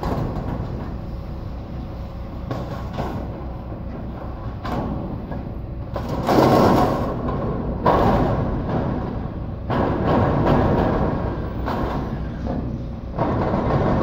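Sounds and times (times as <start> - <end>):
low engine hum: 0.0 - 14.0
metal roofing panels sliding: 6.0 - 14.0.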